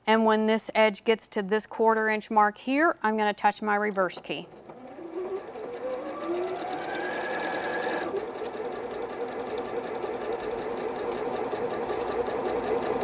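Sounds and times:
sewing machine stitching: 0:04.1 - 0:13.0.

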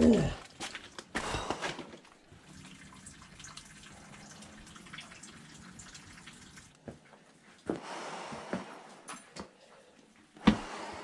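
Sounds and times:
water dripping in cave: 0:00.0 - 0:06.8.

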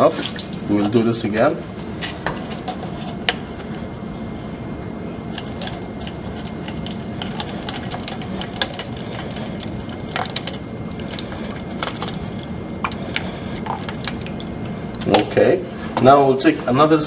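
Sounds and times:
steady low hum: 0:00.0 - 0:17.0
water trickling into cup: 0:05.3 - 0:15.1.

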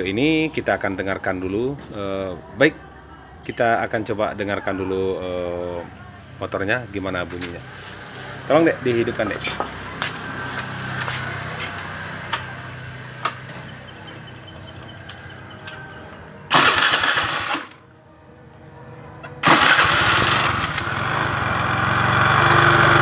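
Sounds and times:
scooter engine starting and running: 0:16.5 - 0:17.8, 0:19.3 - 0:23.0.

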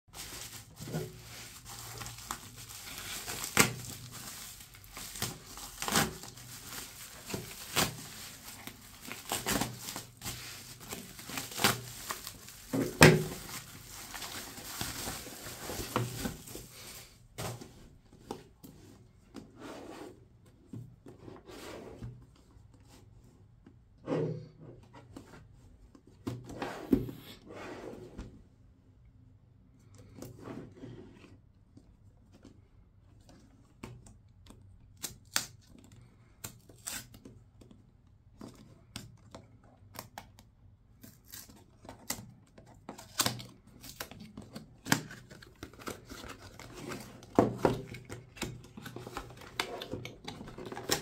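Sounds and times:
plastic mailer crinkling and tearing: 0:00.1 - 0:17.2, 0:41.0 - 0:51.0
cardboard box sliding: 0:21.2 - 0:22.1, 0:26.5 - 0:28.2.

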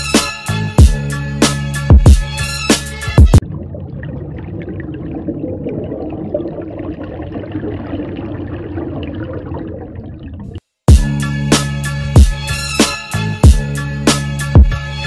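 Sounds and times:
hip-hop music: 0:00.0 - 0:03.4, 0:10.9 - 0:15.0
aquarium filter bubbling: 0:03.4 - 0:10.6.

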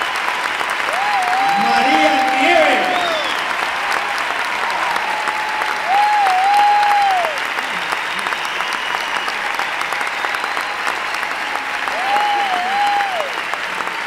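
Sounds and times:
audience applauding: 0:00.0 - 0:14.0
person calling out in crowd: 0:01.4 - 0:03.4.

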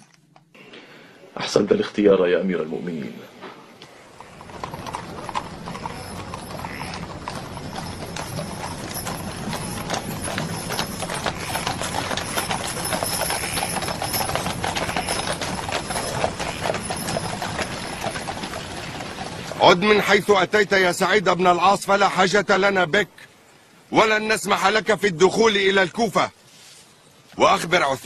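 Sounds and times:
horse hooves clattering on hard ground: 0:03.8 - 0:22.3.

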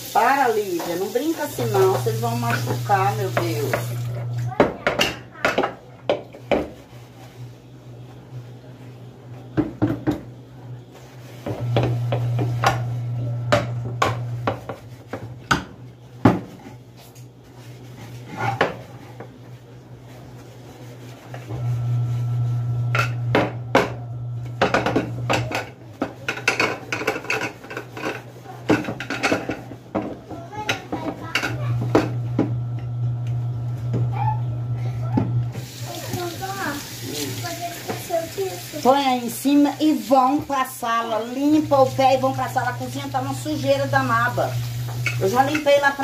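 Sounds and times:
pot lid being scrubbed: 0:00.0 - 0:04.1, 0:41.2 - 0:46.0.

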